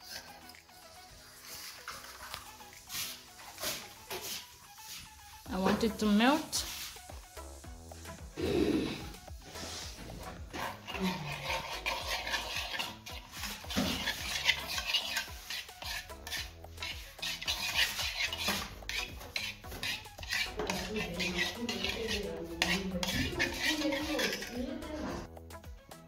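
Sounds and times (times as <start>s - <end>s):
metal spoon scraping a pot: 8.8s - 25.3s.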